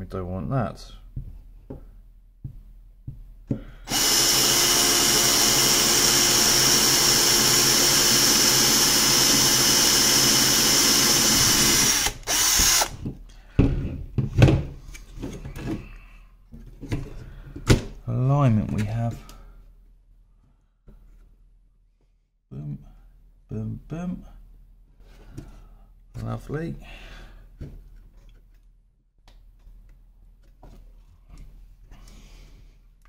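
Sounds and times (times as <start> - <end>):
power drill boring plastic: 3.9 - 13.0.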